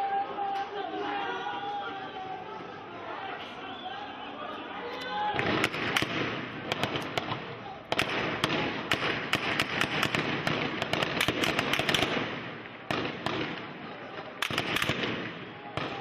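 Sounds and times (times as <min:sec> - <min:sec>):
rifle gunfire: 0:05.4 - 0:13.8, 0:14.4 - 0:16.0.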